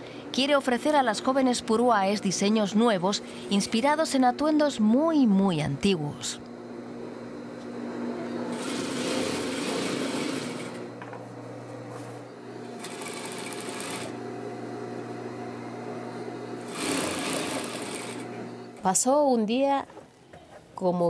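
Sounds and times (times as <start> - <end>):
steady low hum: 0.0 - 8.6, 10.5 - 20.9
sewing machine stitching: 8.5 - 10.8, 12.8 - 14.2, 16.6 - 18.4.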